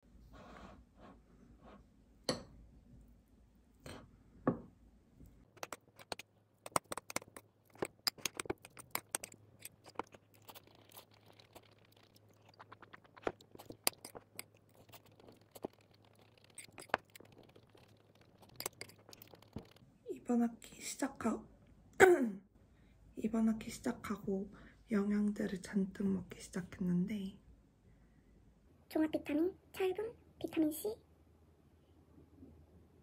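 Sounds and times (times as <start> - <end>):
fork scraping ceramic plate: 5.6 - 19.7.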